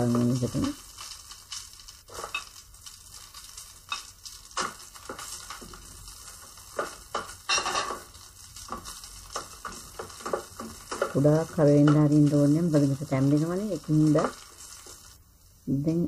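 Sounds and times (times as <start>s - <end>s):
oil sizzling: 0.0s - 16.0s
wooden spoon scraping a pot: 2.1s - 2.5s, 4.0s - 12.8s.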